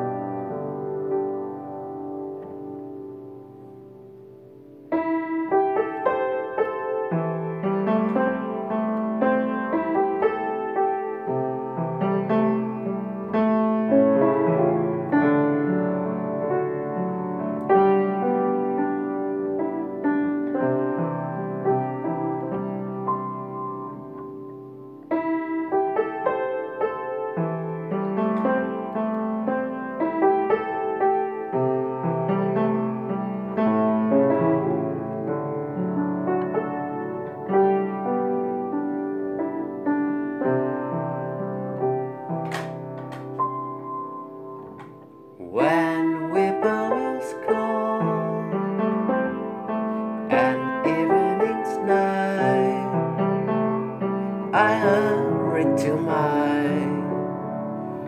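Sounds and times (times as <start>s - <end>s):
upright piano playing chords: 0.0s - 58.0s
man singing softly: 45.4s - 49.0s, 50.3s - 53.3s, 54.5s - 57.4s.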